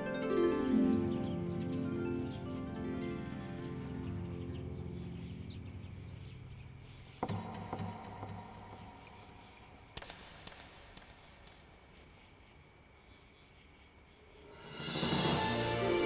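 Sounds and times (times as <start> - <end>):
knocks: 7.2 - 9.2
sharp clicks: 7.2 - 12.6.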